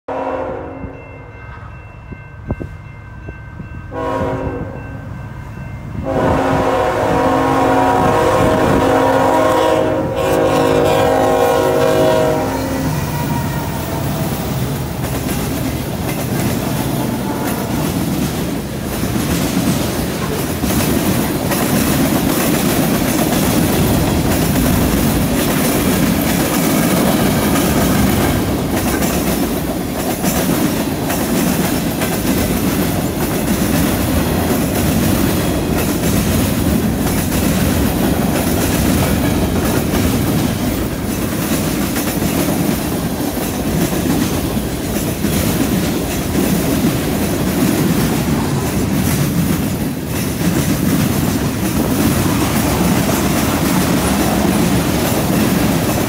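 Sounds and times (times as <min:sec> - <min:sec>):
train horn blasts: 0:00.1 - 0:01.7, 0:03.9 - 0:05.1, 0:06.0 - 0:14.5, 0:16.7 - 0:18.1
train rumble: 0:00.1 - 0:56.0
wheels clattering on rail joints: 0:14.2 - 0:56.0.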